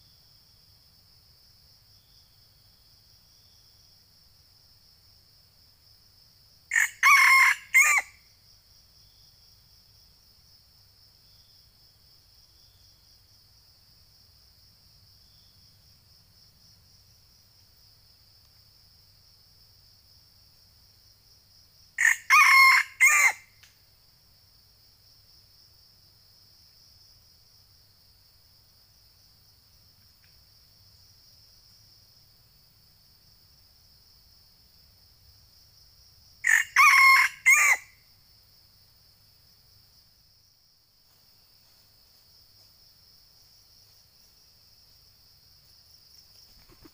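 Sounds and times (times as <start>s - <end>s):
high insect drone: 0.0s - 46.9s
rooster crowing: 6.7s - 8.2s, 22.0s - 23.5s, 36.4s - 38.0s.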